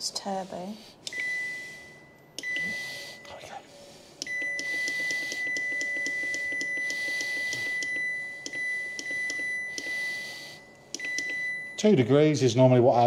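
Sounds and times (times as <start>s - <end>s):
control panel beeping: 1.0s - 1.8s, 2.4s - 3.3s, 4.2s - 11.9s.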